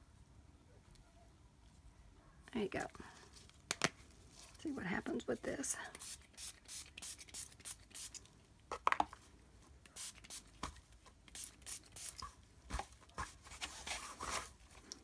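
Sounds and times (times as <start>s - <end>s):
silk rustling against paper: 12.0s - 15.0s.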